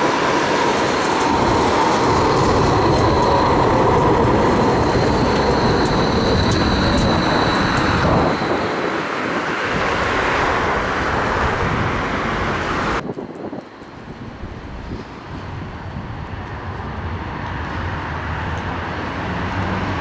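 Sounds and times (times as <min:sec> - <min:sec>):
high tram whine: 0:00.0 - 0:13.1
traffic noise: 0:00.0 - 0:20.0
tram wheels rumbling on rail: 0:00.0 - 0:20.0.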